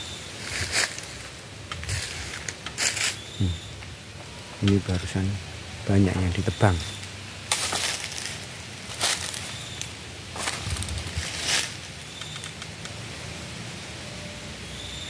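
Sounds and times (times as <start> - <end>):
footsteps on dry leaves: 0.0 - 3.7, 6.6 - 12.5.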